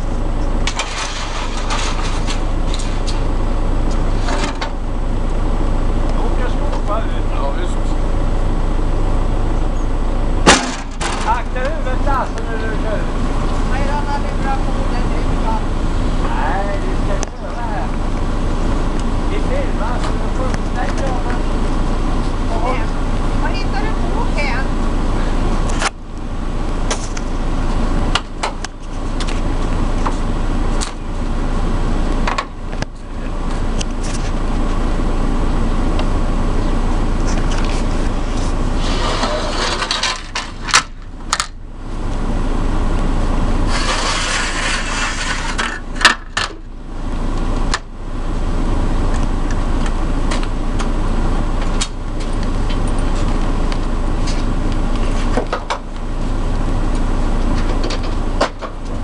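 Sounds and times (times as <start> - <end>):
engine running: 0.0 - 59.0
metal ramps clanking: 0.6 - 3.2, 10.4 - 11.7, 38.8 - 41.0.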